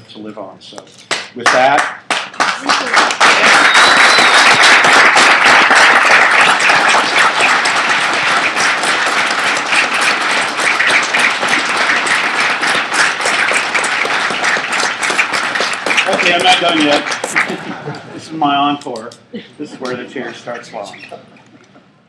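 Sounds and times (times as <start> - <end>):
crowd applauding: 1.1 - 18.1.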